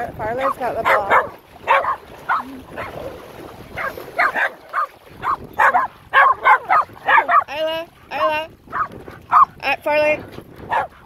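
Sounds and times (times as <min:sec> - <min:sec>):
dog barking and yipping: 0:00.8 - 0:02.9, 0:03.8 - 0:07.5, 0:08.7 - 0:09.6, 0:10.7 - 0:11.0.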